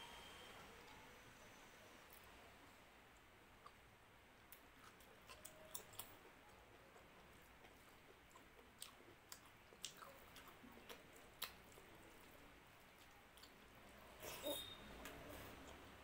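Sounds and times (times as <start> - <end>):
chewing: 4.4 - 16.0.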